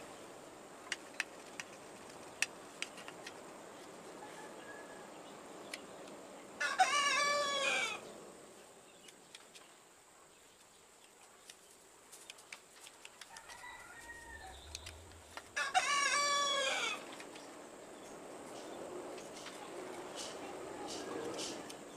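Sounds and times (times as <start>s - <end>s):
rooster crowing: 4.2s - 5.2s, 6.6s - 8.0s, 13.3s - 17.1s.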